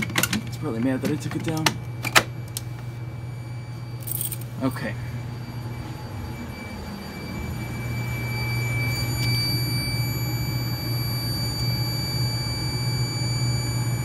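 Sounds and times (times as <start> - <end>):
low hum: 0.0 - 14.0
high-pitched electronic tone: 3.0 - 14.0.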